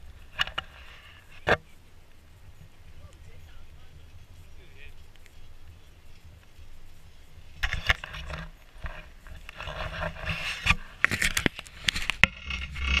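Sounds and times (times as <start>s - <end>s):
fabric rubbing on camera housing: 4.4s - 13.0s.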